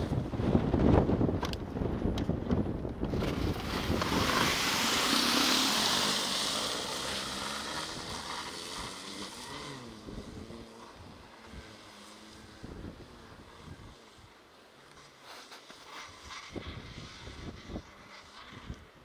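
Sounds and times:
wind buffeting microphone: 0.0s - 8.4s
snowmobile track hissing through snow: 2.9s - 19.0s.

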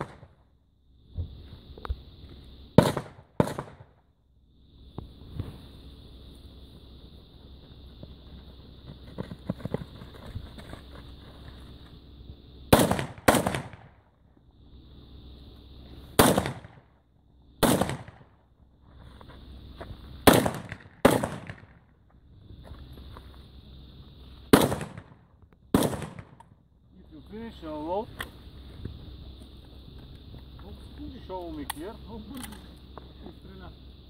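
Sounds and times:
rifle shots with echo: 2.8s - 3.9s, 12.7s - 14.0s, 16.2s - 16.8s, 17.6s - 18.3s, 20.2s - 21.8s, 24.5s - 26.4s.

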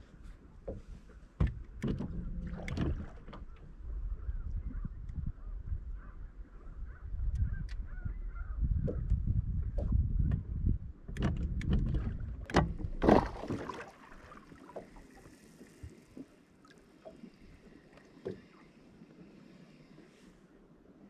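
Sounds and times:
water lapping against boat hull: 0.0s - 6.2s, 6.8s - 21.0s
wind on microphone: 1.4s - 13.0s.

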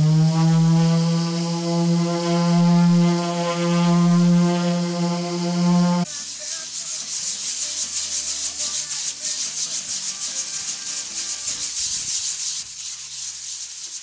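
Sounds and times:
orbital sander sanding wood: 0.0s - 6.1s.

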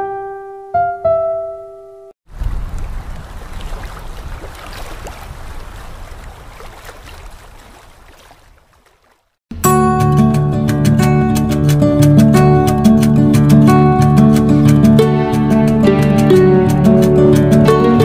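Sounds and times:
music: 0.0s - 2.2s, 9.5s - 18.0s.

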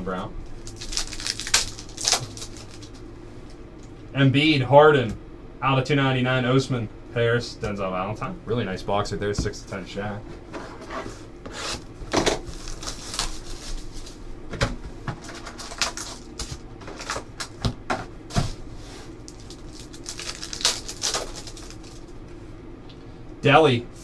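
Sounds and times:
foil wrappers crinkling: 0.5s - 3.0s, 12.1s - 14.2s, 15.2s - 17.6s, 19.1s - 22.2s.

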